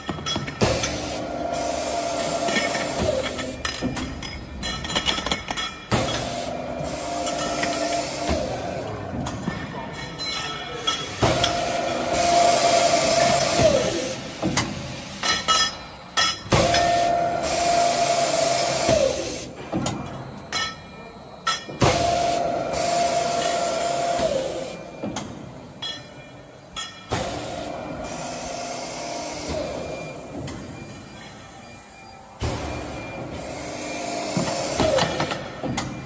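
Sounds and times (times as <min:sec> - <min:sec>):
metallic clanks and knocks: 0:00.0 - 0:01.0, 0:02.6 - 0:06.3.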